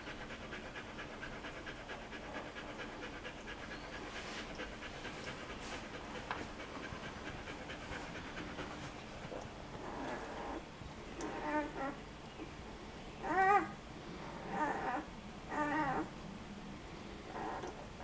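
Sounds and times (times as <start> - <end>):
dog panting: 0.0 - 10.6.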